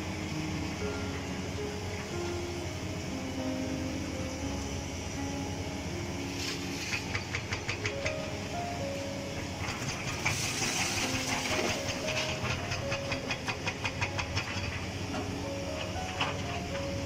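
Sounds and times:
simple melody of held notes: 0.0 - 6.6, 7.9 - 9.6
fast tapping beat: 7.0 - 8.2.

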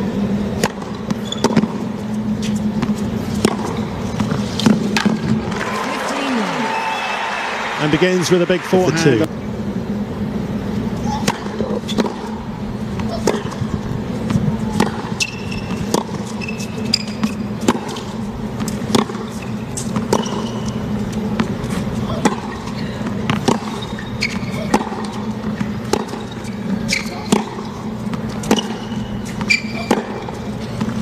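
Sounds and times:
tennis ball strikes: 0.5 - 1.9, 2.8 - 5.6, 11.1 - 12.4, 13.0 - 16.4, 17.0 - 20.6, 21.3 - 26.3, 27.0 - 31.0
shoe squeaks: 1.0 - 4.6, 14.3 - 18.2, 19.0 - 31.0.

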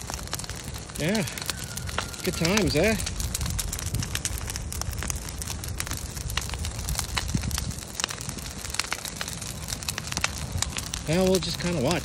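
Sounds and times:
branches burning and crackling: 0.0 - 12.0.

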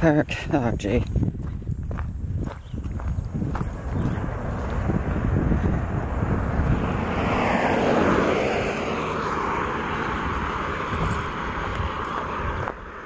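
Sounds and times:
low rumble: 1.0 - 13.0
vehicle engine passing by: 3.1 - 13.0.

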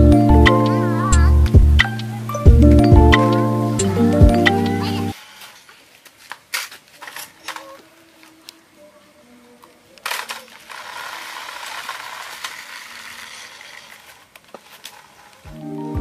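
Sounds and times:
toy car electric motor running: 10.0 - 15.3.

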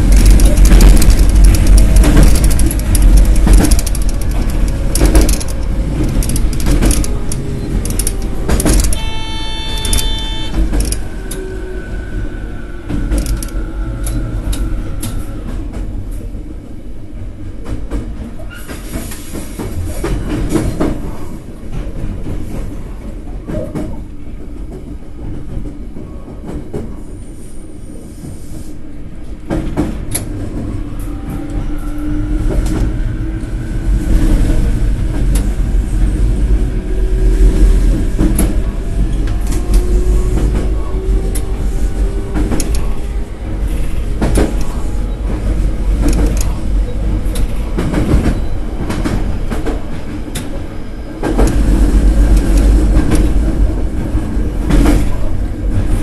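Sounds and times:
train running rumble: 0.0 - 56.0
sharp control clicks: 9.8 - 10.1.

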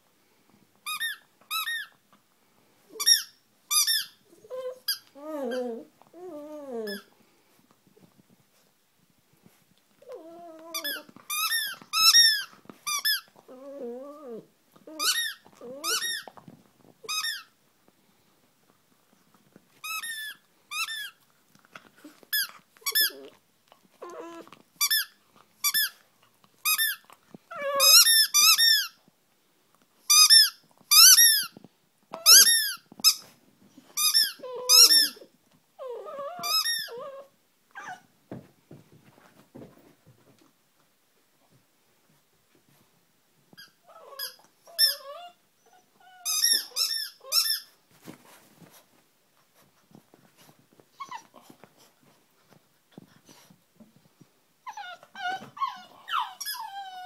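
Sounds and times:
squeaky toy squeaking: 3.0 - 4.2, 10.7 - 13.3, 15.0 - 16.3, 17.0 - 17.5, 19.8 - 21.2, 24.8 - 26.0, 26.6 - 27.0, 27.7 - 29.0, 30.1 - 31.5, 32.2 - 33.2, 34.0 - 35.3, 36.3 - 37.1, 43.6 - 45.4, 46.2 - 47.7, 54.7 - 57.0.

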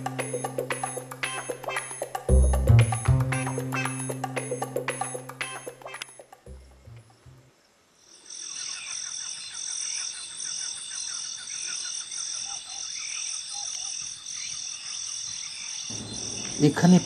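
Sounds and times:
insects chirping: 3.4 - 17.0
steady high whine: 15.9 - 17.0.

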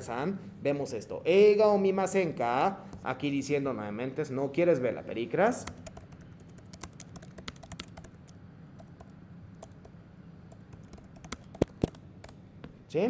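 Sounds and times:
computer keyboard typing: 5.6 - 12.4.

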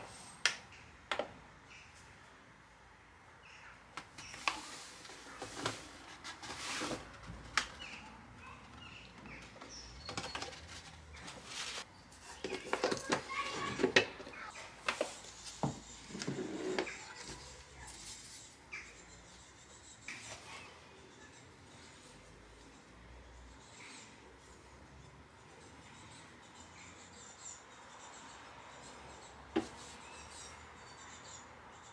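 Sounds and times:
paper bag rustling: 4.3 - 7.7, 10.1 - 11.9
containers clicking and knocking: 12.4 - 14.3.

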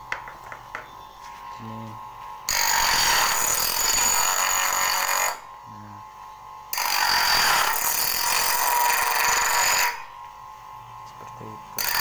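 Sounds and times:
bench grinder grinding saw blade: 2.5 - 5.4, 6.7 - 10.1, 11.8 - 12.0.

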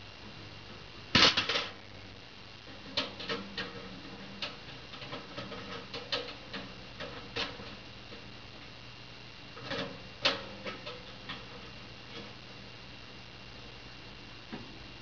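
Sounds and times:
mouse scratching in wire cage: 2.7 - 8.3.

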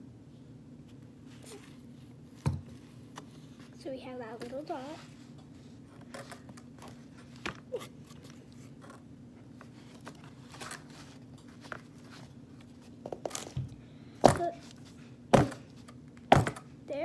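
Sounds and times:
steady low hum: 0.0 - 17.0
cardboard crinkling and scraping: 1.2 - 13.6.

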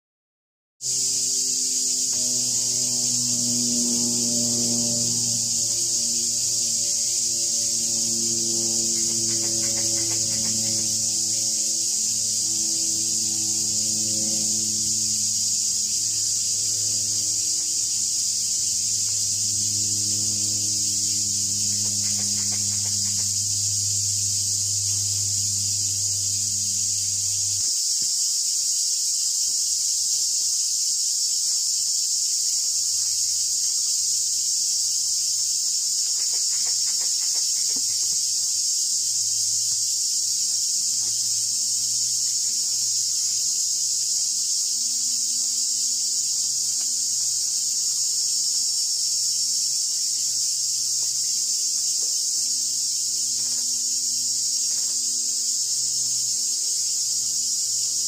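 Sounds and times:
high-pitched insect chorus: 0.8 - 58.0
faint low hum: 1.0 - 27.6.

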